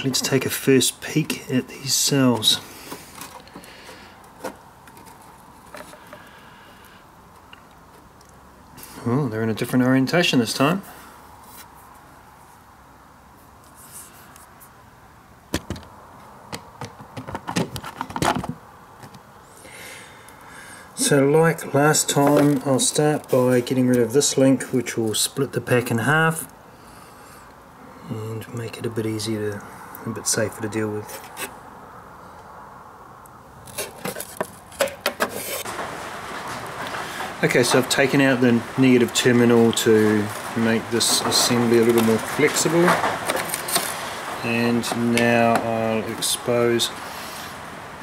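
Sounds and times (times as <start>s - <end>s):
faint room hiss: 0.0s - 48.0s.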